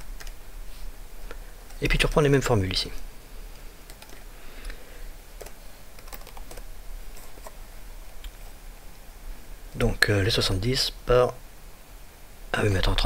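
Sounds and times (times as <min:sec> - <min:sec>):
low steady hum: 0:00.0 - 0:13.0
computer keyboard typing: 0:00.2 - 0:00.4, 0:03.8 - 0:04.8, 0:05.4 - 0:07.6.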